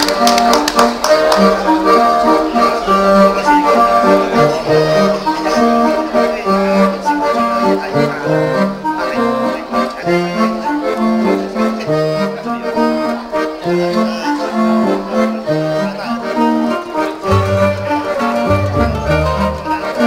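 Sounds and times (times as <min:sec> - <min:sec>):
stepping bass line: 0:17.3 - 0:20.0.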